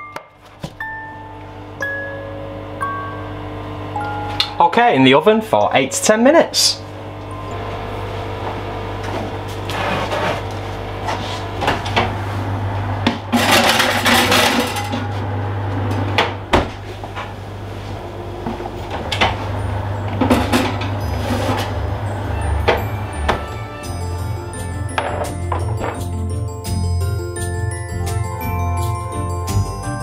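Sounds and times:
steady low hum: 0.4s - 26.7s
metal baking tray scraping: 9.7s - 10.5s.

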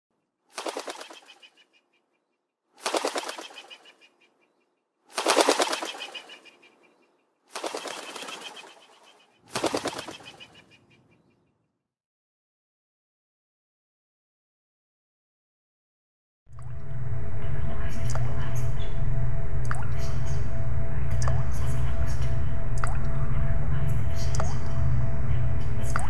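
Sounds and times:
hummingbird wings fluttering: 0.5s - 1.8s, 2.8s - 4.4s, 5.1s - 10.8s.

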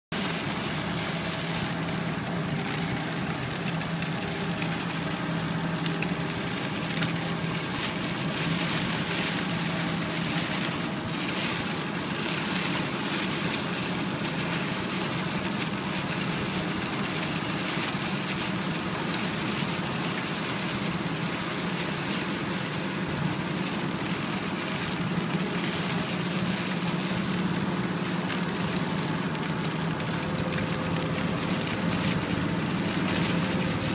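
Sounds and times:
car engine hum: 0.1s - 33.9s
rain: 0.1s - 33.9s
tyres hissing on wet road: 0.1s - 33.9s.

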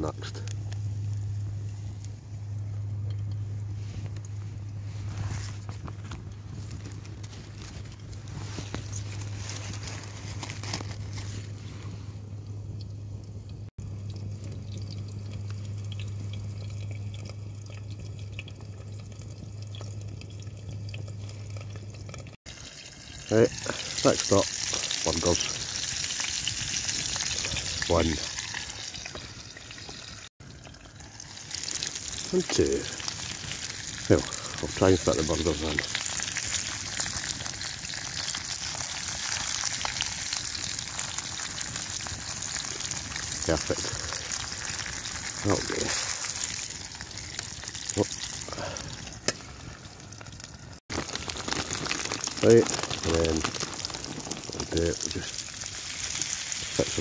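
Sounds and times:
steady low hum: 0.0s - 22.4s
onions sizzling in oil: 21.1s - 57.0s.

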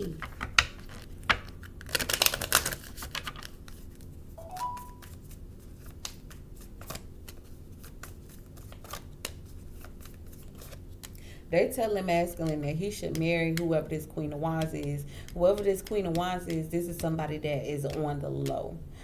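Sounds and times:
cards rustling and clicking: 0.1s - 11.2s, 11.9s - 18.6s
brief steady tone: 4.4s - 5.0s.

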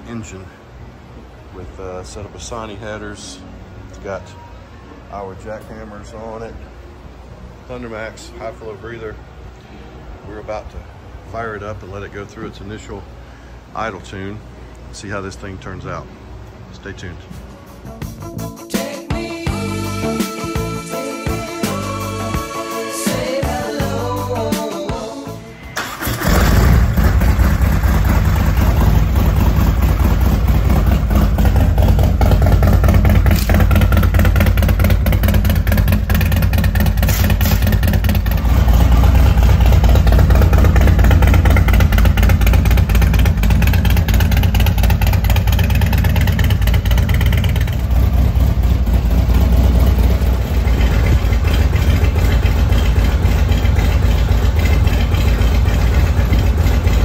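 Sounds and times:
motorcycle engine idling: 26.2s - 57.0s.

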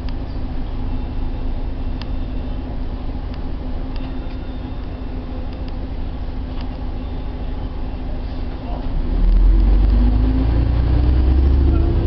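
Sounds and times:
bus engine and road drone: 0.0s - 12.0s.

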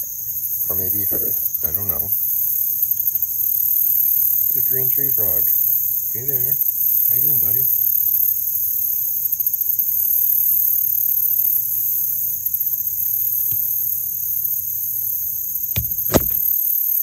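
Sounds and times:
shrill insect chorus: 0.0s - 16.4s
sharp clicks: 15.8s - 16.4s.

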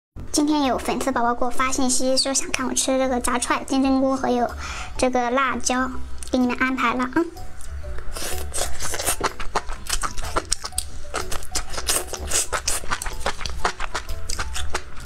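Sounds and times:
background music: 0.2s - 15.0s
chewing with wet clicks: 8.5s - 15.0s.

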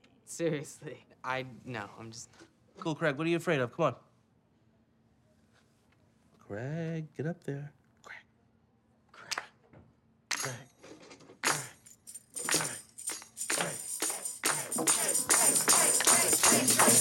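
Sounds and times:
tambourine jingling: 11.4s - 17.0s
pitched instruments: 12.1s - 17.0s.

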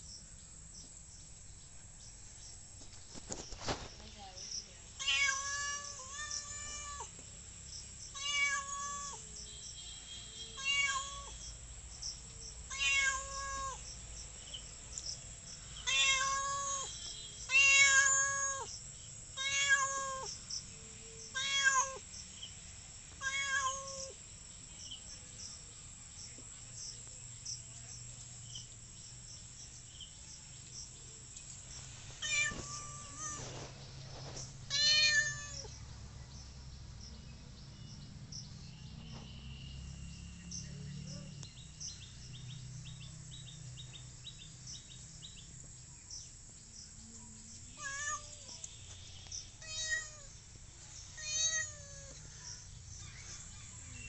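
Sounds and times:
cat meowing: 5.0s - 7.1s, 8.2s - 9.2s, 10.6s - 11.3s, 12.7s - 13.8s, 15.8s - 16.9s, 17.5s - 18.7s, 19.4s - 20.3s, 21.3s - 22.0s, 23.2s - 24.2s, 32.2s - 33.6s, 34.7s - 35.7s, 47.8s - 48.6s, 49.6s - 50.3s, 51.2s - 52.2s.

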